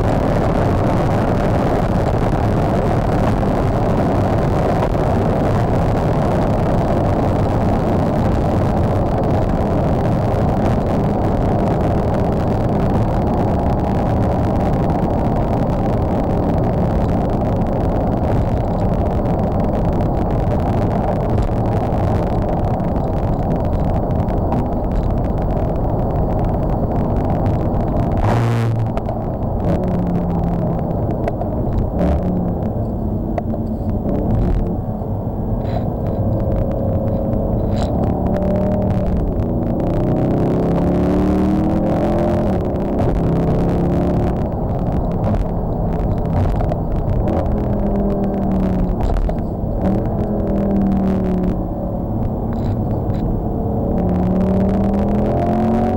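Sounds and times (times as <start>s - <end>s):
car cabin engine and wind noise: 0.0s - 55.9s.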